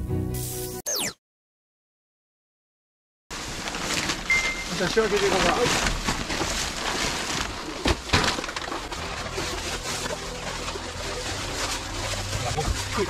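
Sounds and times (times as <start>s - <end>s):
clutter rustling and clattering: 3.3s - 13.0s.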